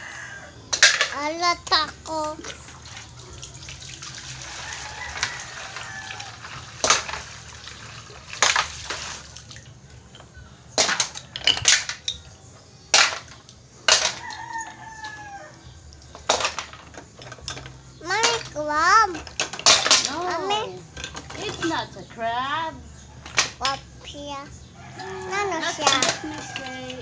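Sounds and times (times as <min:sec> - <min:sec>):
rooster crowing: 0:00.0 - 0:00.6, 0:04.4 - 0:06.7, 0:14.1 - 0:15.8, 0:24.8 - 0:27.0
shells clattering against metal pot: 0:00.7 - 0:01.9, 0:16.1 - 0:22.0, 0:25.3 - 0:27.0
running water splashing: 0:01.7 - 0:10.0, 0:25.0 - 0:27.0.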